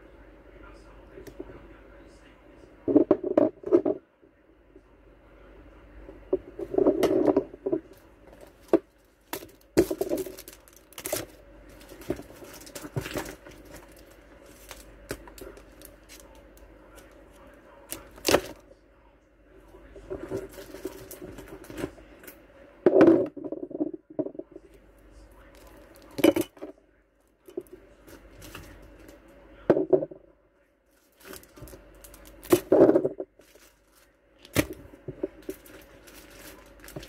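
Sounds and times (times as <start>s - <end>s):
plastic wrapping crinkling: 6.9s - 17.2s, 20.2s - 21.8s, 30.9s - 32.7s, 33.4s - 37.0s.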